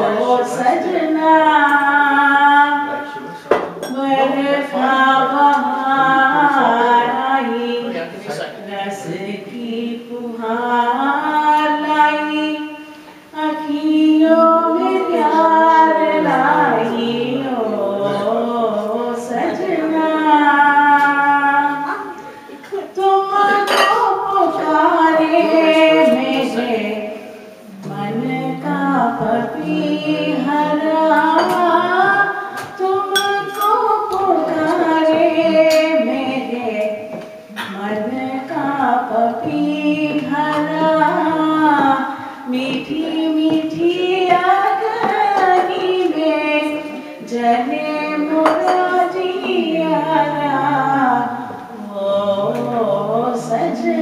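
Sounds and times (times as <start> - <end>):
woman singing: 0.0 - 3.2, 3.8 - 54.0.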